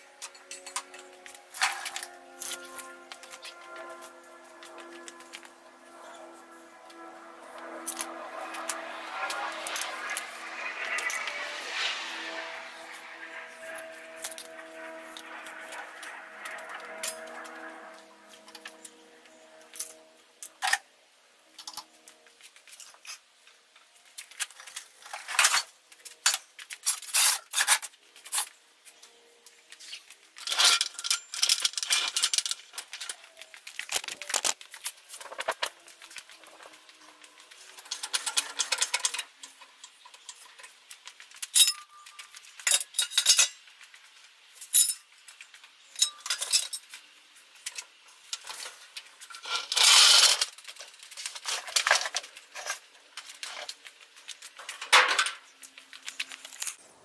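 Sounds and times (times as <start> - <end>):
metallic clinks and clatters: 0.1 - 4.0, 36.0 - 43.7, 44.6 - 45.2.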